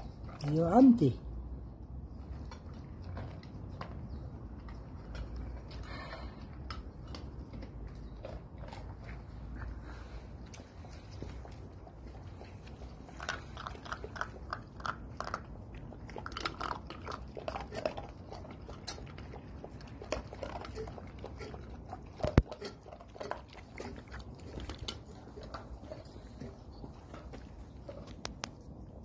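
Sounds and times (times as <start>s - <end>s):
dogs crunching dry kibble: 0.0s - 1.2s, 1.8s - 29.0s
kibble clicking on metal bowl: 13.1s - 28.6s.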